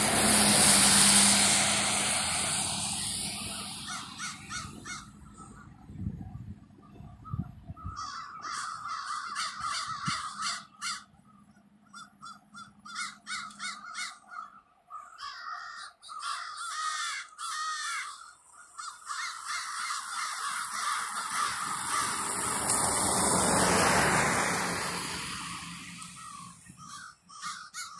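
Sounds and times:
broad rushing noise: 0:00.0 - 0:06.4, 0:19.9 - 0:26.8
crows cawing: 0:03.4 - 0:05.2, 0:07.9 - 0:11.1, 0:11.9 - 0:23.9, 0:26.0 - 0:27.9.

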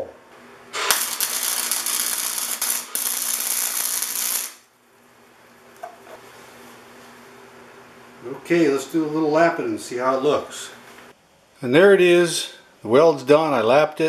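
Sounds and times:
welding arc crackling: 0:00.7 - 0:04.7.

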